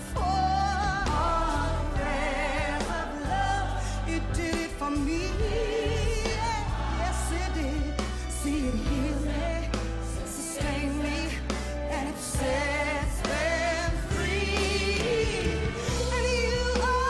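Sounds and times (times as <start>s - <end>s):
band accompaniment: 0.0s - 17.0s
woman singing with vibrato: 0.0s - 17.0s.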